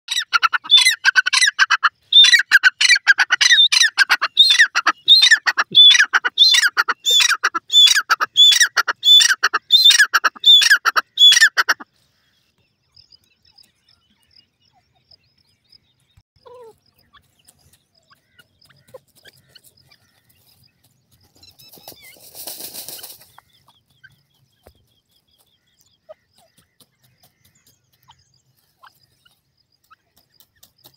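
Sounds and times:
bird calling shrill notes: 0.1 - 11.6.

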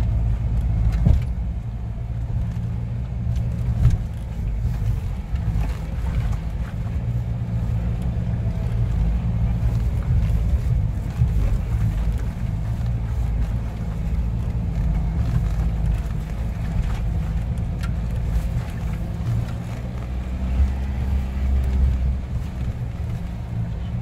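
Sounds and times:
vehicle engine running: 0.0 - 24.0
vehicle body knocks and rattles: 0.7 - 1.7.

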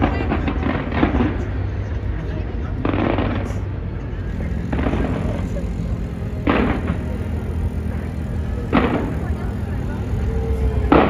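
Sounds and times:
fireworks bangs: 0.0 - 2.1, 2.8 - 3.7, 4.3 - 11.0
low rumble: 0.0 - 11.0.

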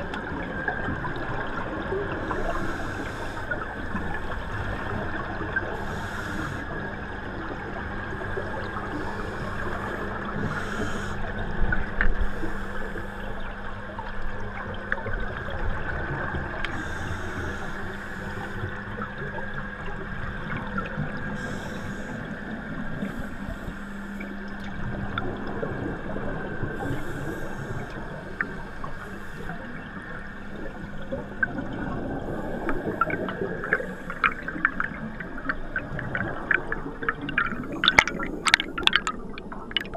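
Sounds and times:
steady low hum: 0.0 - 39.9
watery hiss: 2.2 - 5.0, 5.6 - 6.8, 8.8 - 11.4, 16.7 - 18.8, 21.3 - 24.3, 26.7 - 29.8
bubbles rushing underwater: 24.3 - 39.9.

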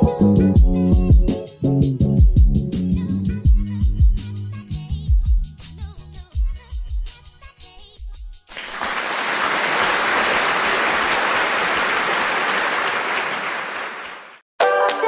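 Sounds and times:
music with a beat: 0.0 - 8.5
steady hiss: 8.5 - 13.8.

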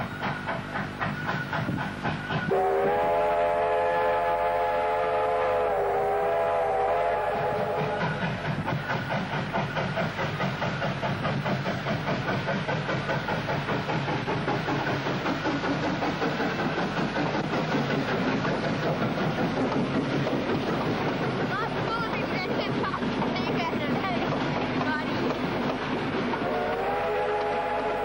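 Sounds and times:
steam exhaust chuffs: 0.0 - 28.0
steam locomotive whistle: 2.4 - 8.4, 26.4 - 28.0.

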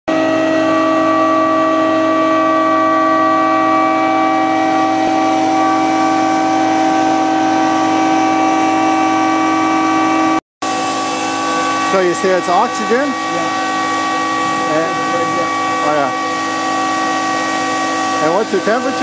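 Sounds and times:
pump whine: 0.1 - 19.0
loud steady hiss: 10.7 - 19.0.

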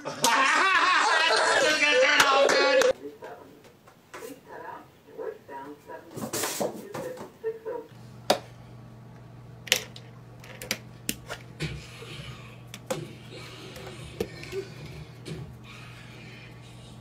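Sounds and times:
aquarium hum: 8.0 - 17.0.

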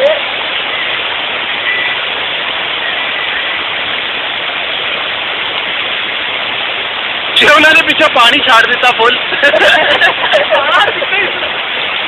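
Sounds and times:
rushing river water: 0.0 - 12.0.

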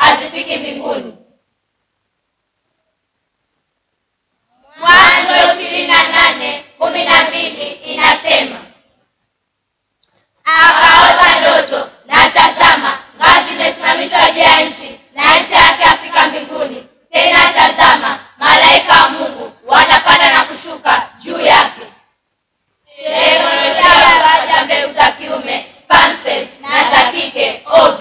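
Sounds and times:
children chanting in unison: 0.0 - 1.3, 4.5 - 8.8, 10.4 - 22.0, 22.9 - 28.0.

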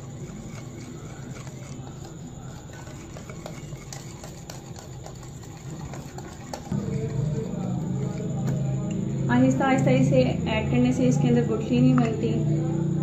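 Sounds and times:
whisk scraping in bowl: 0.0 - 8.9
whisk wires clicking on bowl: 0.0 - 9.0.

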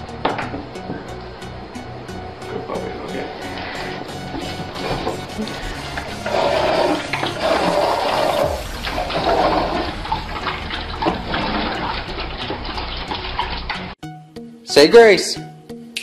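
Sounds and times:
puppies crunching and lapping: 8.6 - 14.0.

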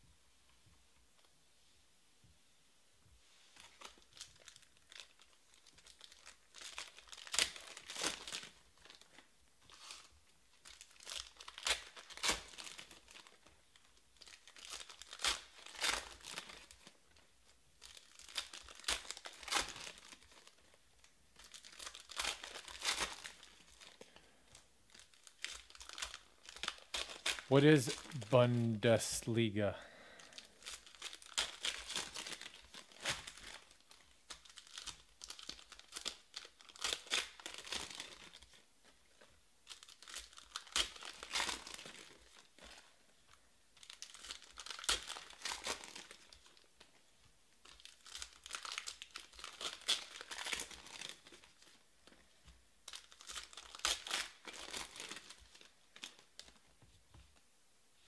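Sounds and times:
foil wrappers tearing and crinkling: 3.6 - 20.8, 21.4 - 28.1, 30.2 - 43.0, 43.8 - 46.7, 47.6 - 56.6.

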